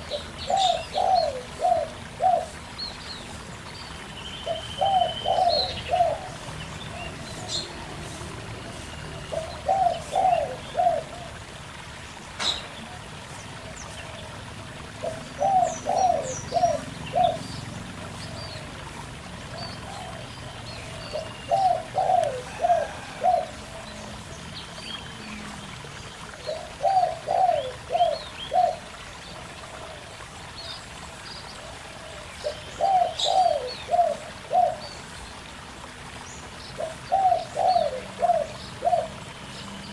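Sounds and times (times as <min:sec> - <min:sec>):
dove cooing: 0:00.0 - 0:02.7, 0:04.4 - 0:08.0, 0:09.1 - 0:11.4, 0:14.8 - 0:18.7, 0:19.4 - 0:24.3, 0:26.2 - 0:29.0, 0:31.9 - 0:34.9, 0:36.8 - 0:39.3
stream trickling over rocks: 0:00.0 - 0:39.9.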